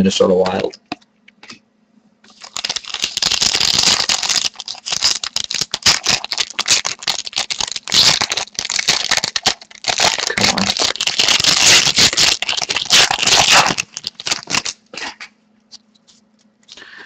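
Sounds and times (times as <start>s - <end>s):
wrapper tearing and crinkling: 2.3s - 15.3s.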